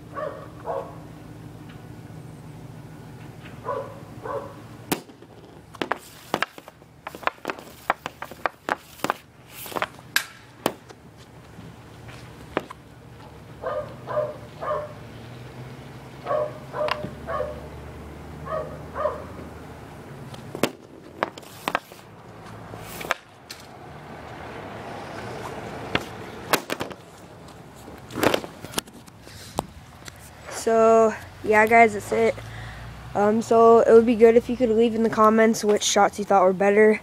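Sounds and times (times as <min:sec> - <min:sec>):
hockey stick sliding a puck: 0:05.3 - 0:10.0, 0:21.0 - 0:22.1, 0:22.8 - 0:23.2.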